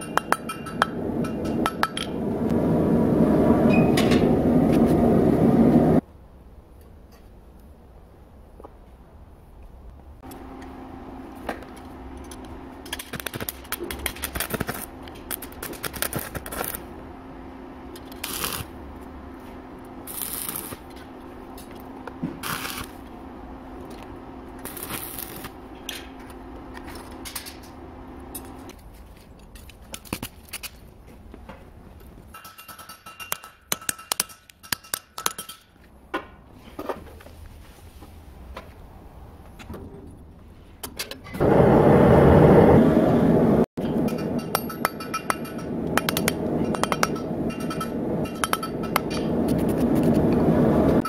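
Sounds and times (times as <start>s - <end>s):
arc welder humming: 10.2s - 28.7s, 41.4s - 51.0s
welding arc crackling: 11.8s - 16.9s, 17.9s - 19.1s, 20.0s - 28.7s.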